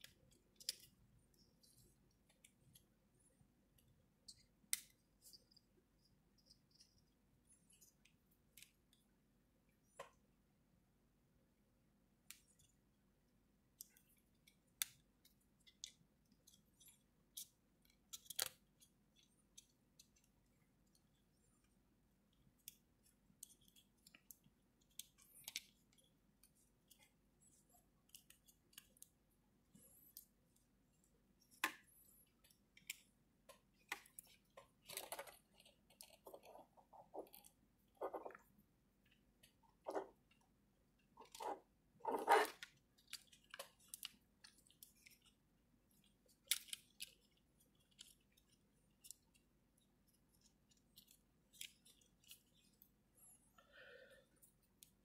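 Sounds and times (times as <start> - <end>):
plastic toy parts clicking and rattling: 13.7 - 21.7, 31.5 - 38.4, 41.2 - 52.8.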